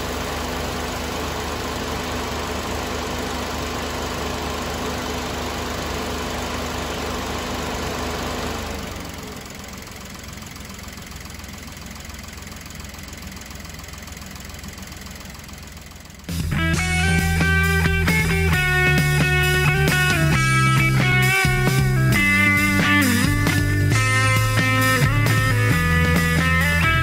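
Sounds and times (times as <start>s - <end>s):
car engine idling: 0.0s - 27.0s
guitar music: 16.3s - 27.0s.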